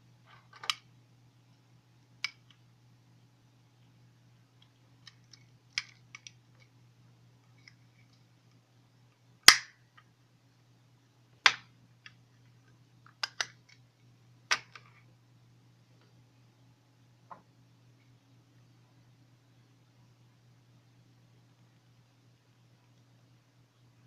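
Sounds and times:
faint low hum: 0.0 - 24.0
plastic clicks and snaps: 4.6 - 6.7, 13.0 - 13.8.

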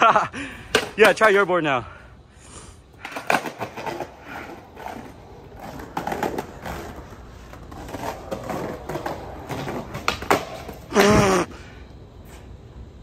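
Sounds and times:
skateboard wheels clacking over joints: 0.0 - 1.7, 2.9 - 11.6
skateboard wheels rolling on concrete: 0.0 - 13.0.

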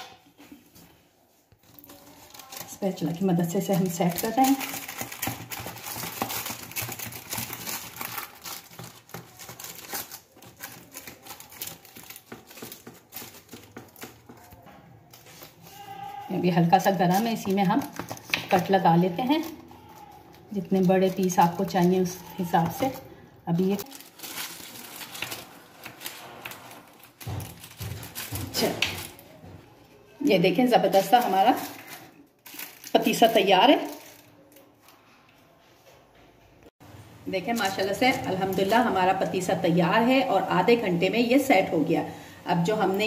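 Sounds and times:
paper crinkling and rustling: 0.4 - 29.7, 30.7 - 35.6.

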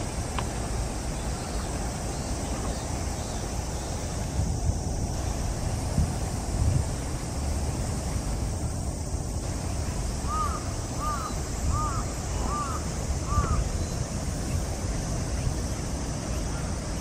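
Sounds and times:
wind buffeting microphone: 0.0 - 17.0
bird calling: 10.2 - 14.7.

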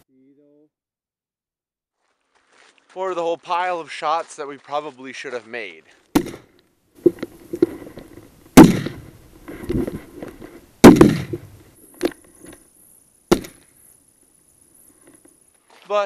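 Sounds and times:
loud shotgun shots: 6.1 - 6.5, 8.6 - 9.1, 10.8 - 11.5, 13.3 - 13.6
short sharp cracks: 8.6 - 9.1, 9.7 - 12.2.

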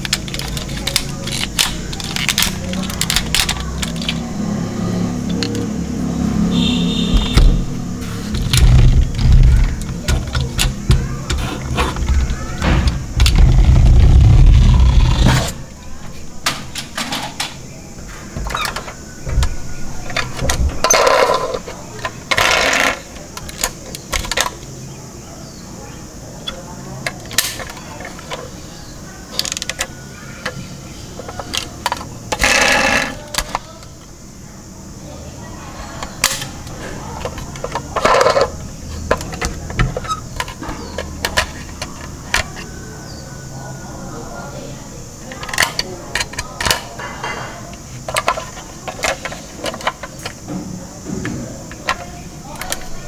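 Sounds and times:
toy truck knocks and clicks: 0.0 - 4.6, 8.3 - 15.5, 18.4 - 24.6, 26.5 - 28.5, 29.3 - 33.9, 36.0 - 42.8, 45.3 - 53.0
toy truck rubbing and rattling: 0.0 - 5.7, 7.1 - 15.7, 20.1 - 24.5, 29.3 - 33.8, 36.0 - 42.8, 45.4 - 50.5
scraping rattle: 6.9 - 15.7, 31.2 - 33.8.

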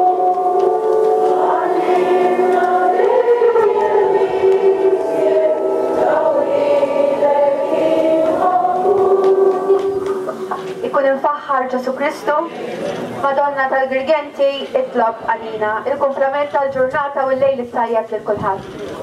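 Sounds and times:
congregation singing a hymn: 0.0 - 11.0.

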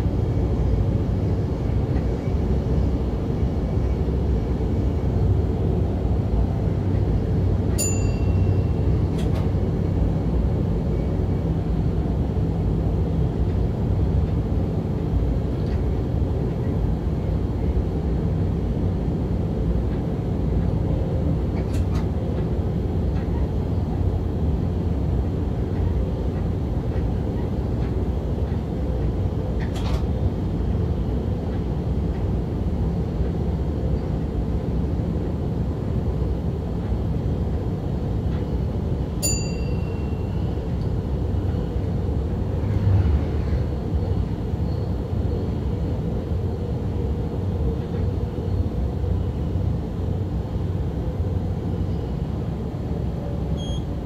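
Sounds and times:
train engine and wheels rumbling: 0.0 - 54.0
short electronic beep: 53.6 - 53.9.

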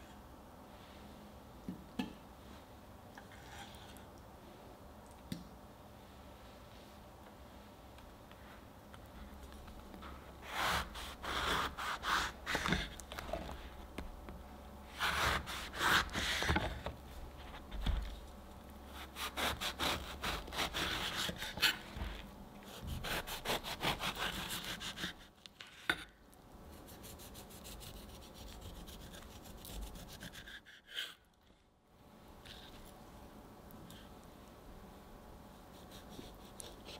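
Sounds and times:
knife sawing through grapefruit rind: 10.4 - 12.8, 14.9 - 16.5, 18.9 - 21.9, 22.7 - 25.2, 26.9 - 31.2.

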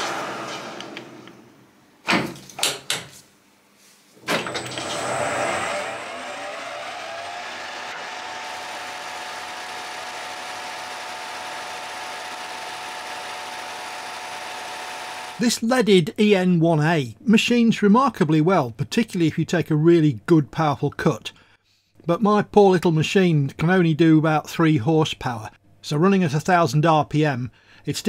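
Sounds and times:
lathe drive starting up: 4.4 - 15.4
lathe gear whine: 4.6 - 15.4.

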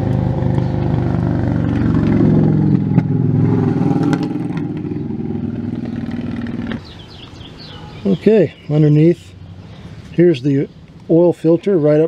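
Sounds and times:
engine running steadily: 0.0 - 6.8.

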